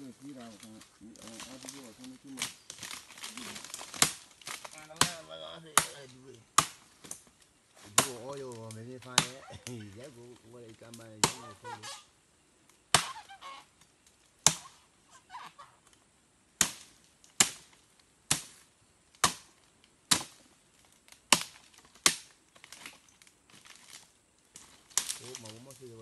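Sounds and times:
machete chopping palm base: 3.8s - 5.2s, 5.8s - 6.8s, 7.9s - 8.2s, 9.2s - 9.4s, 11.2s - 11.5s, 12.9s - 13.2s, 14.4s - 14.7s, 16.6s - 17.7s, 18.3s - 18.6s, 19.2s - 19.5s, 20.1s - 20.4s, 21.3s - 22.3s.

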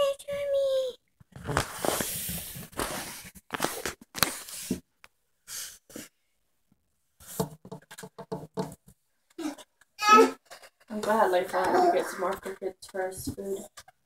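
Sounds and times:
rustling and brushing: 1.3s - 4.8s.

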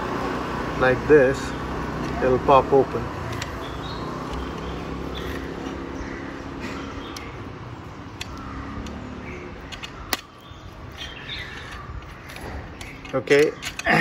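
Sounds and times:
birds chirping: 0.0s - 14.0s
steady background noise: 0.0s - 14.0s
small metal clicks: 3.3s - 5.4s, 8.1s - 14.0s.

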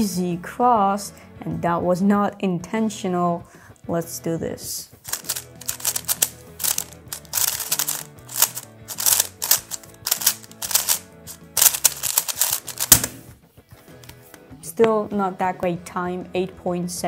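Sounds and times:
puzzle cube clicking: 5.1s - 13.2s.

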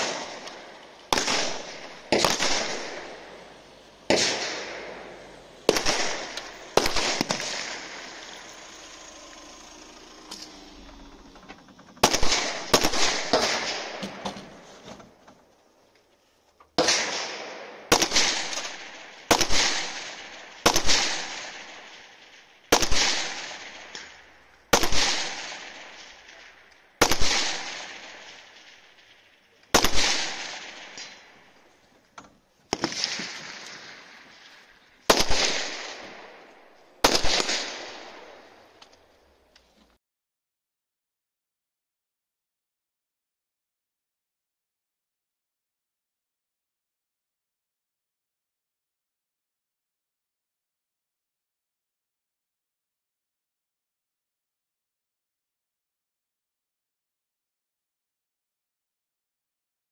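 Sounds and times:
rifle shots echoing: 0.0s - 14.8s, 16.8s - 31.7s, 32.7s - 38.8s.

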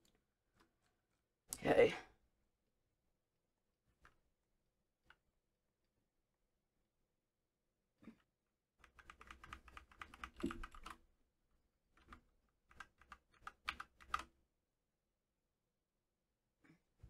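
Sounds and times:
keyboard keys clicking: 8.8s - 11.0s, 12.0s - 14.3s.

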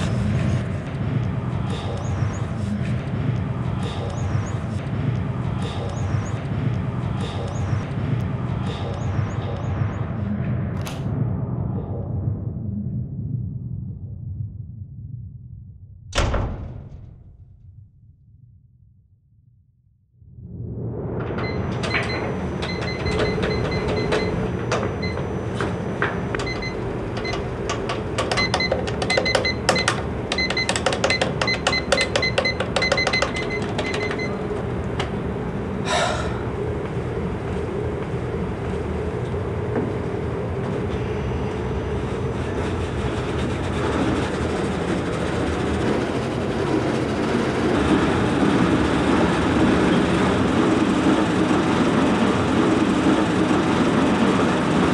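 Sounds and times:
treadmill motor and belt hum: 0.0s - 10.6s, 21.0s - 54.9s
treadmill console beeps: 21.3s - 34.7s.

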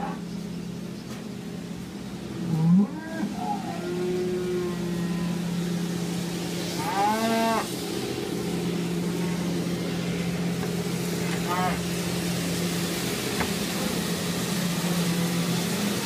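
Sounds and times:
low machine hum: 0.0s - 16.0s
cattle mooing: 2.4s - 5.6s, 6.7s - 7.7s, 11.3s - 11.9s.

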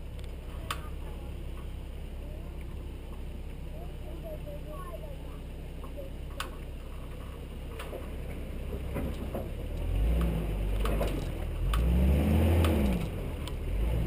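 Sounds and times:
car engine revving: 5.3s - 14.0s
sharp clicks and knocks: 6.3s - 11.9s.

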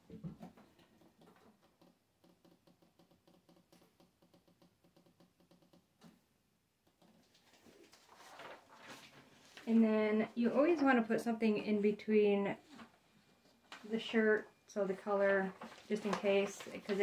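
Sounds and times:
faint rapid ticking: 0.8s - 5.9s.

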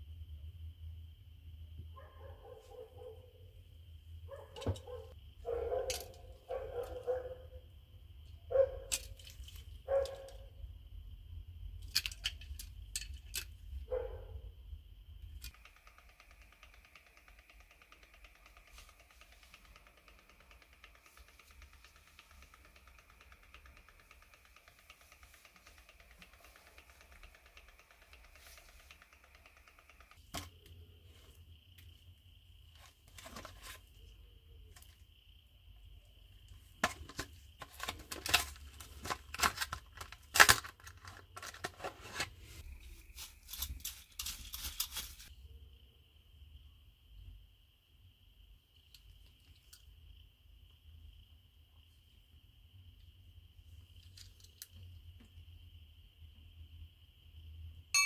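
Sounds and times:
insects chirring: 0.8s - 41.7s, 42.5s - 57.9s
packaging snap: 36.8s - 41.6s.

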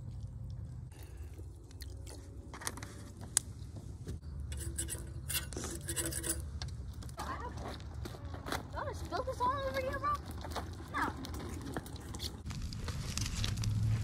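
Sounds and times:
eating sounds: 0.0s - 2.5s.

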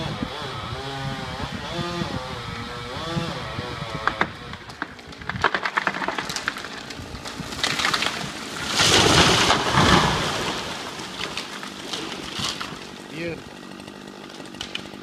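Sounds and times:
wood cracking and snapping: 3.8s - 15.0s
tree trunk crashing to ground: 4.0s - 13.1s, 13.9s - 15.0s.

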